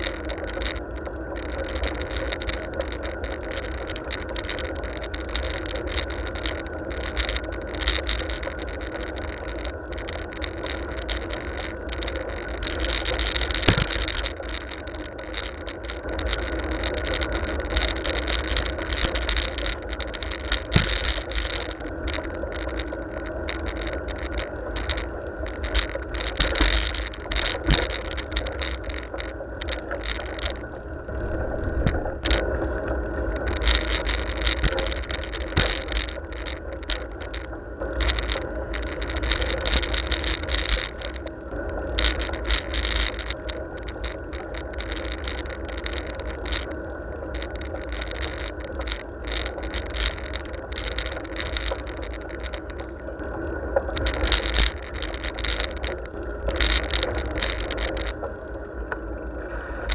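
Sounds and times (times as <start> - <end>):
bicycle rattling and knocking: 0.0 - 32.6, 33.3 - 52.9, 53.9 - 58.3
wind rumble on microphone: 0.0 - 59.9.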